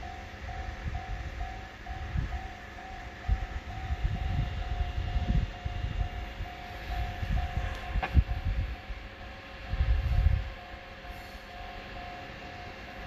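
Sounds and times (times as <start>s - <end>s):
level crossing alarm ringing: 0.0s - 13.0s
wind on microphone: 0.5s - 10.6s.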